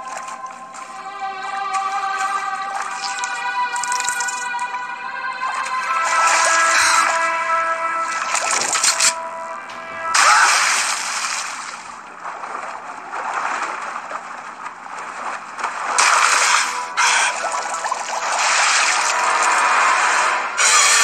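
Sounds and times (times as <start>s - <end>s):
cartoon liquid splashing and gurgling: 1.8s - 4.6s, 5.5s - 7.3s, 8.0s - 9.2s, 10.1s - 21.0s.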